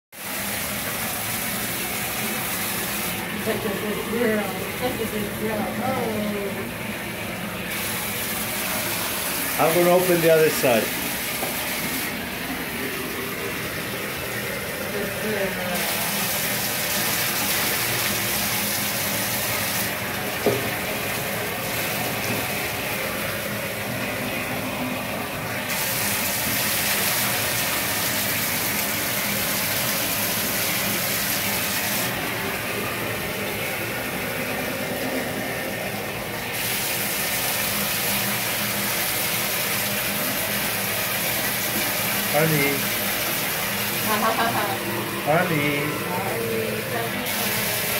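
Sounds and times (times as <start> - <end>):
bathtub tap running into water: 0.2 - 47.9
water poured from a pitcher: 15.8 - 23.4.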